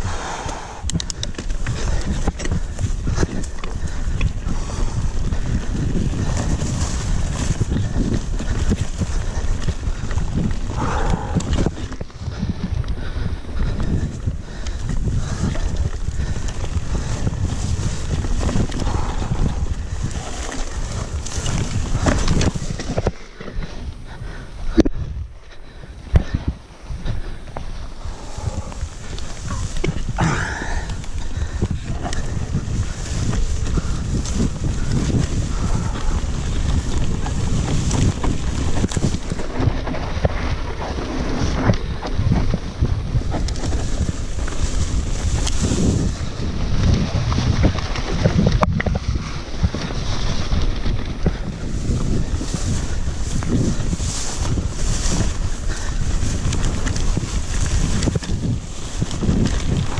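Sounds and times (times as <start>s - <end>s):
bike rattling and knocking: 0.0s - 59.9s
bike tyres rumbling over ground: 0.0s - 59.9s
wind on microphone: 0.0s - 59.9s.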